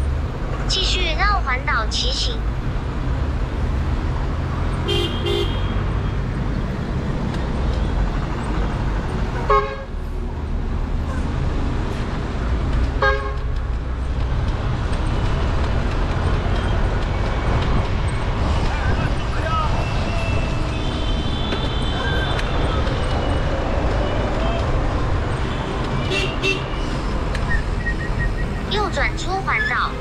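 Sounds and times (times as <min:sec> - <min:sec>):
wind and road noise: 0:00.0 - 0:30.0
vehicle horns honking: 0:04.8 - 0:05.9, 0:09.4 - 0:09.9, 0:13.0 - 0:13.5, 0:25.5 - 0:26.8.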